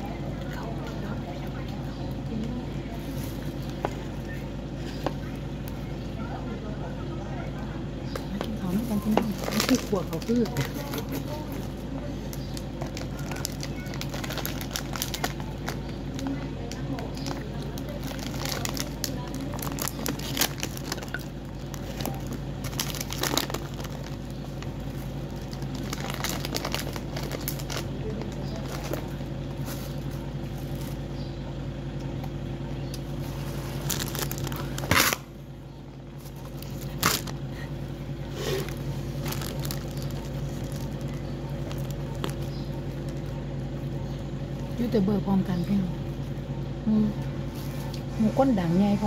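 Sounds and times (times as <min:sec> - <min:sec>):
steady low hum: 0:00.0 - 0:49.0
crunchy chewing of beans: 0:08.0 - 0:35.4, 0:36.0 - 0:44.8
plastic bag crinkling: 0:08.6 - 0:31.1, 0:33.2 - 0:35.3, 0:36.2 - 0:37.7, 0:38.6 - 0:43.9.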